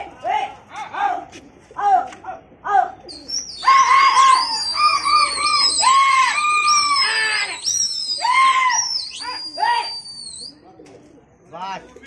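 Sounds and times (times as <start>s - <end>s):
short high repeated calls: 3.1s - 10.5s
shrill wavering whistling: 3.1s - 10.5s
short calls: 3.1s - 10.6s.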